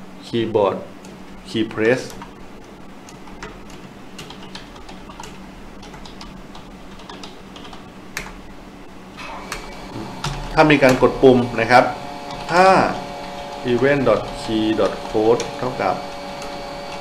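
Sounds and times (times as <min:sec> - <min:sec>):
typing on a keyboard: 0:03.1 - 0:08.4.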